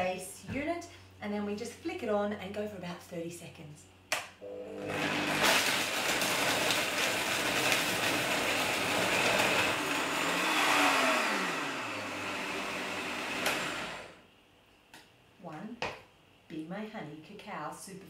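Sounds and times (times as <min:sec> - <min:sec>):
blender blending ice: 0:04.4 - 0:14.2.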